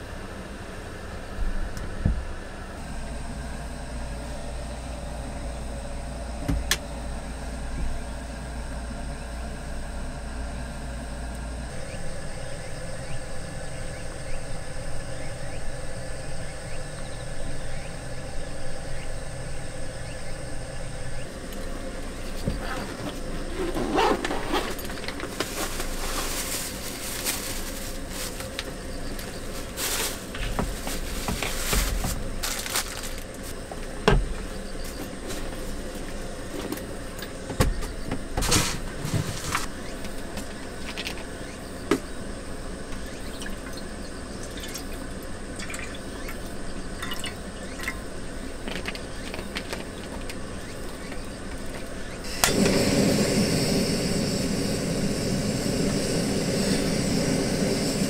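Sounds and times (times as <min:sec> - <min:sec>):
faint insects: 0:02.0 - 0:58.0
plastic packaging crinkling: 0:24.0 - 0:28.6, 0:29.2 - 0:33.6.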